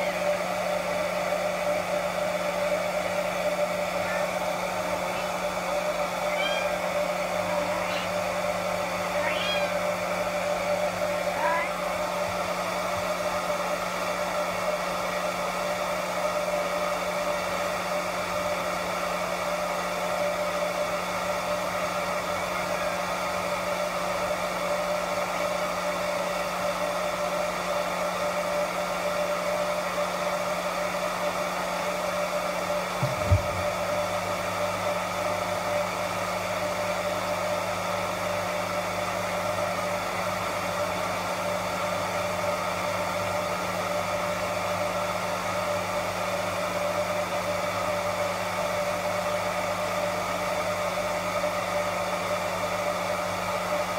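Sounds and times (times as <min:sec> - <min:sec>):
hair dryer blowing: 0:00.0 - 0:53.9
short knock: 0:33.0 - 0:33.7.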